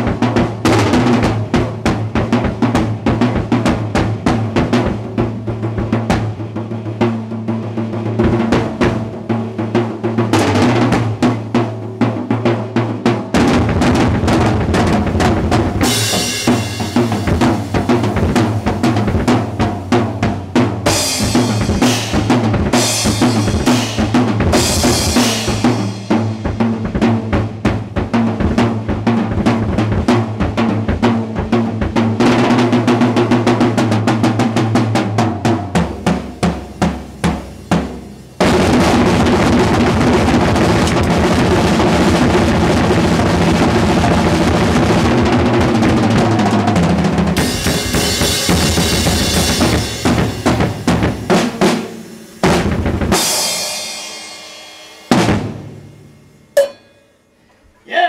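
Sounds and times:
fast drum solo: 0:00.0 - 0:56.8
cymbal crashes: 0:15.8 - 0:20.3, 0:20.9 - 0:26.8, 0:47.4 - 0:57.2.

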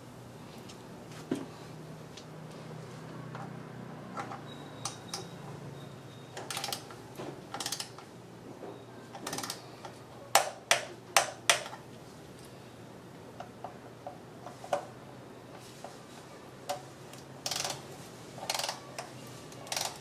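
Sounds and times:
rapid ratchet clicking: 0:07.5 - 0:08.0, 0:17.4 - 0:17.8, 0:18.4 - 0:18.8, 0:19.6 - 0:20.0
torque wrench sharp clicks: 0:17.4 - 0:17.8, 0:18.4 - 0:18.8, 0:19.6 - 0:20.0.

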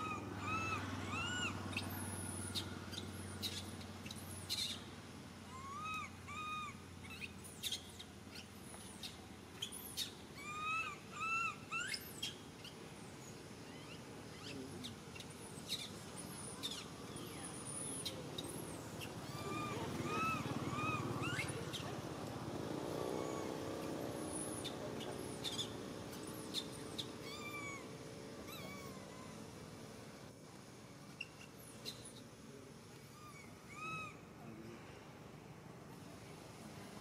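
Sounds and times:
baby monkey crying: 0:00.0 - 0:01.5, 0:05.5 - 0:07.2, 0:10.4 - 0:12.0, 0:19.0 - 0:21.8, 0:26.2 - 0:29.4.

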